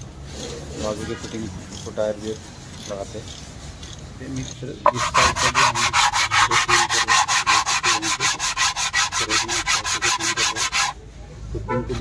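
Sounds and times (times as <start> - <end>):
hand sanding scraping strokes: 4.8 - 11.0.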